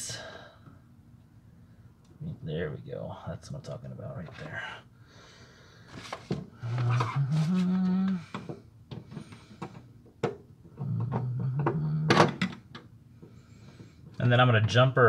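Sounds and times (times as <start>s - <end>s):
man humming: 6.6s - 8.5s, 10.7s - 12.4s.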